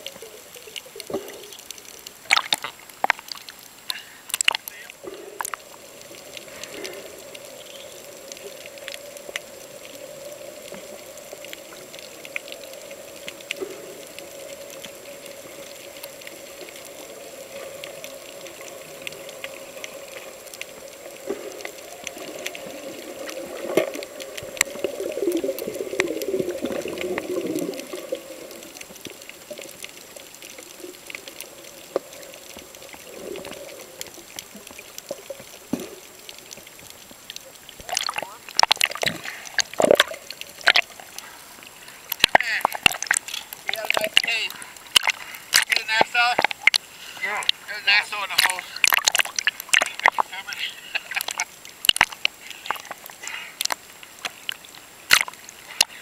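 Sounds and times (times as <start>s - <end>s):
faint clicks and crackles: 0.0s - 56.0s
rush of water: 0.0s - 56.0s
underwater hum: 0.0s - 56.0s.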